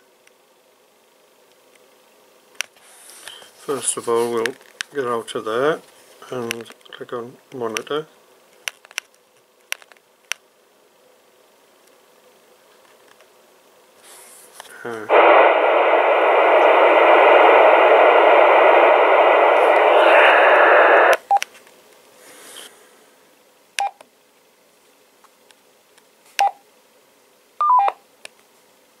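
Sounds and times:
radio static hiss: 14.8 - 21.4.

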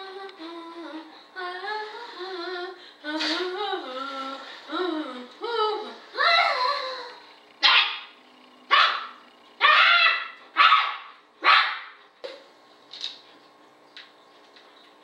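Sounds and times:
dog barking: 7.6 - 8.1, 8.7 - 12.0.

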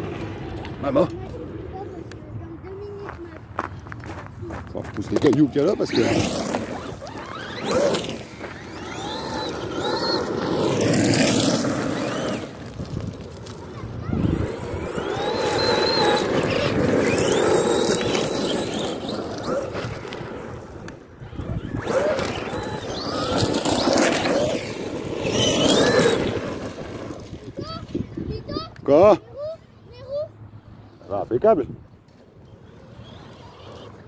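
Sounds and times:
tyres crunching on gravel: 3.0 - 20.9
electric motor whining: 5.3 - 13.1, 14.1 - 27.4.

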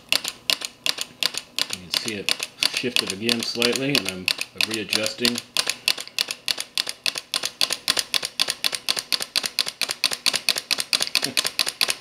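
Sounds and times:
small engine rapid mechanical clicks: 0.1 - 12.0.

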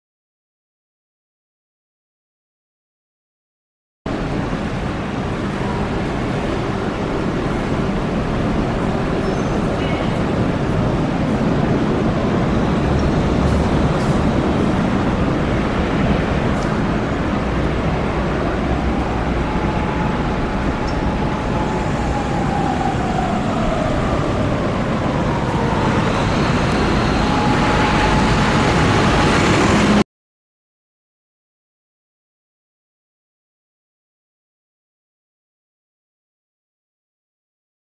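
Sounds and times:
faint whine: 4.1 - 30.0
street traffic: 4.1 - 30.0.

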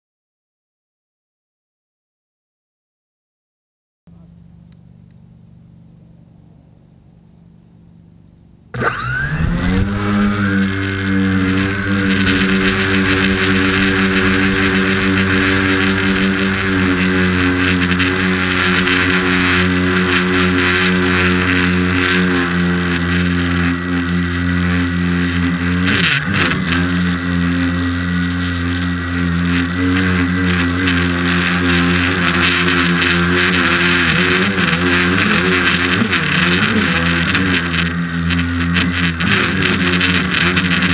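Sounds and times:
buzzing rattle of loose plate: 8.7 - 40.9
drone motors and propellers whirring: 8.7 - 40.9.

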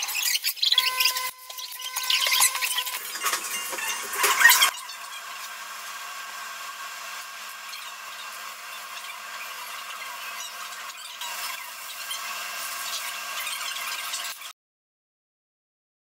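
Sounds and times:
kitchen clattering: 2.0 - 4.7
steady cooking hiss: 5.0 - 14.5.

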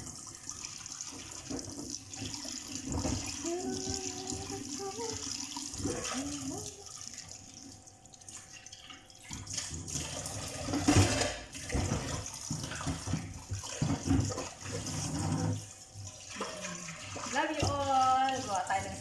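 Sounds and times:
tap running into sink: 1.0 - 6.8, 8.4 - 15.7
clatter of plates and utensils: 10.6 - 15.6.

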